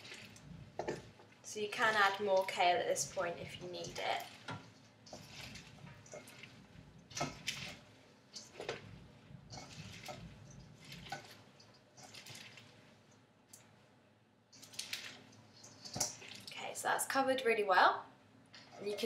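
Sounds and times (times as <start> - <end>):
wet squelches of kale: 0.0 - 13.1, 14.5 - 16.6.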